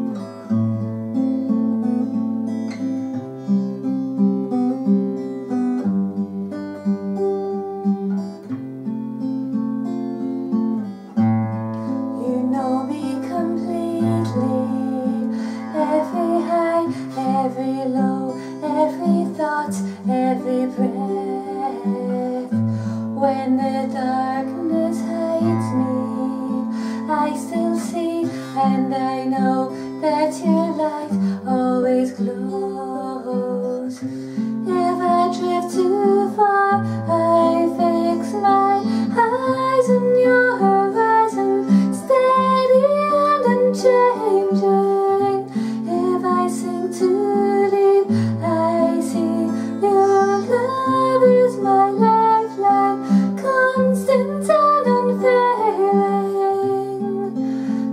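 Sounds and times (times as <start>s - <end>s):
acoustic guitar strumming: 0.0s - 57.9s
woman singing: 11.9s - 57.9s.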